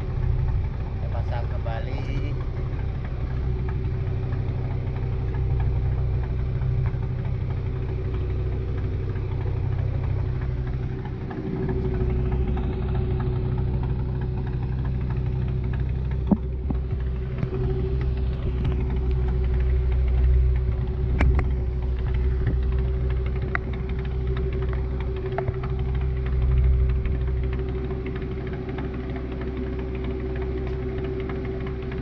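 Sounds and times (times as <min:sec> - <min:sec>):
boat engine droning: 0:00.0 - 0:32.0.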